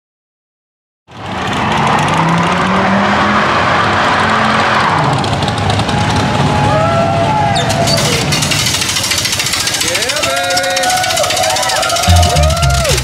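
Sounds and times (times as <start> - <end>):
car engine at high revs: 1.1 - 6.5.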